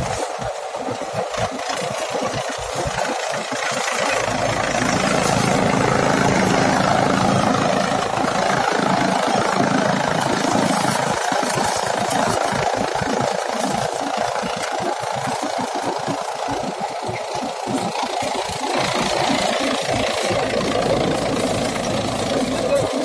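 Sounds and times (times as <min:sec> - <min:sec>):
tractor diesel engine running: 0:00.4 - 0:23.0
chaff cutter chopping dry stalks: 0:01.5 - 0:15.6.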